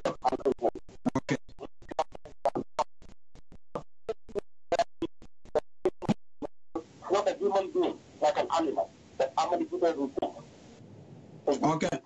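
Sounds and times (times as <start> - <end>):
man speaking over bad phone line: 7.0 - 10.4.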